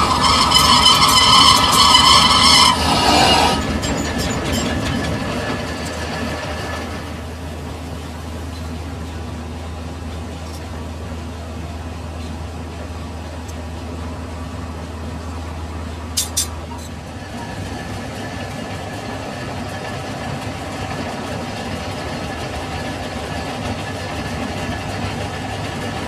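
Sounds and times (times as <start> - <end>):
lathe tool squealing on metal: 0.0 - 6.0.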